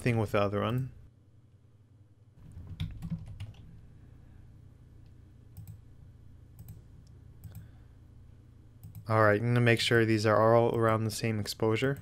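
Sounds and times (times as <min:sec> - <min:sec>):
faint low hum: 0:00.0 - 0:12.0
keyboard keys clicking: 0:02.6 - 0:03.6.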